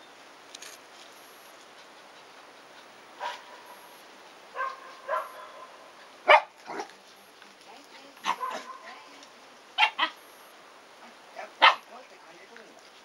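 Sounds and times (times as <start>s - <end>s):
dogs barking in high yips: 4.6s - 6.9s, 8.2s - 8.9s, 9.8s - 10.2s, 11.4s - 11.9s.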